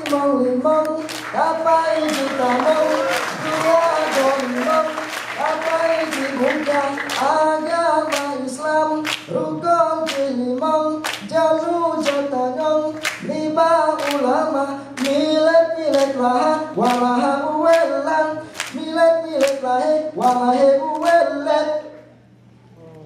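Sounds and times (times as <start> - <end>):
group hand claps: 0.0 - 9.4, 10.0 - 11.4, 12.0 - 12.3, 12.9 - 14.4, 15.0 - 21.3
group chanting a cappella: 1.2 - 10.5.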